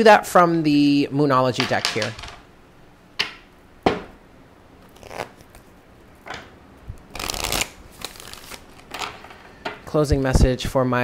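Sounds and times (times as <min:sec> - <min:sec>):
knock on table: 0:03.2 - 0:04.1.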